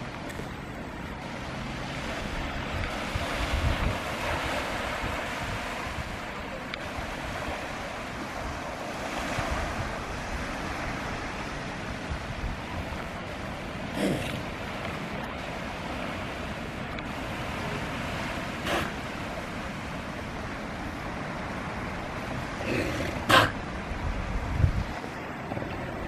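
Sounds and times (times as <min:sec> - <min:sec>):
ocean surf washing on beach: 0:00.0 - 0:26.0
wind buffeting microphone: 0:00.0 - 0:26.0.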